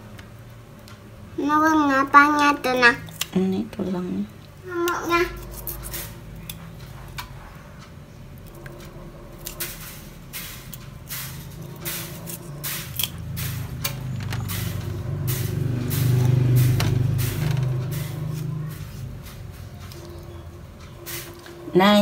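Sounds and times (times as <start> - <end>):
low droning hum: 0.0 - 22.0
knife scraping fish scales: 5.4 - 6.2.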